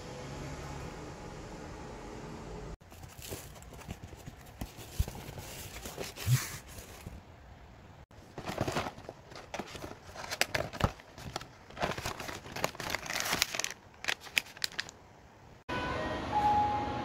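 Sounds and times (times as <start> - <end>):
packaging rustling and crinkling: 2.8 - 7.2, 8.1 - 15.0.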